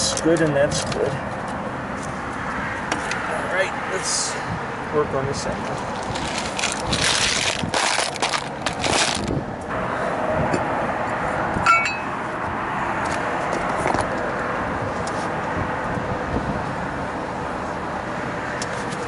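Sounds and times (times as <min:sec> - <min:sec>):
steady background noise: 0:00.0 - 0:19.0
sharp metallic clink: 0:11.6 - 0:12.2.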